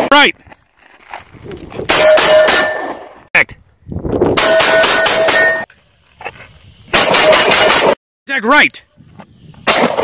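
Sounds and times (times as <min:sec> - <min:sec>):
steel targets ringing: 0:02.0 - 0:03.1, 0:04.4 - 0:05.7.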